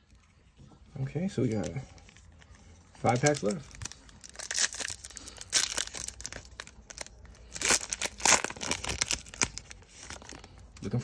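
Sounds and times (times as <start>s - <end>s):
foil wrapper tearing and crinkling: 3.0s - 11.0s.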